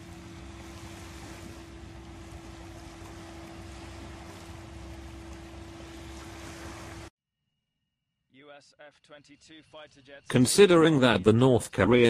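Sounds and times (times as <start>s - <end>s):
constant low hum: 0.0s - 7.1s
water rushing: 0.0s - 7.1s.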